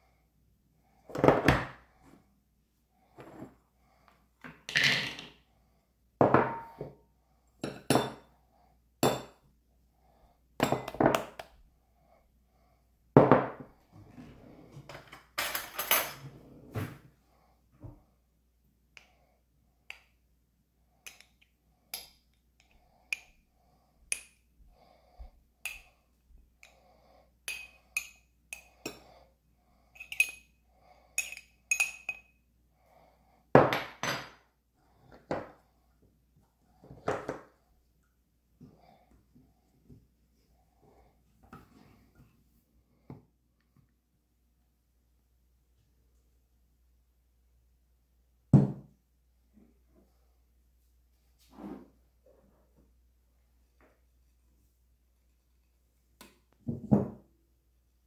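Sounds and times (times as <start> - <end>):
utensils and dishes clinking: 15.2 - 16.3, 30.0 - 30.5.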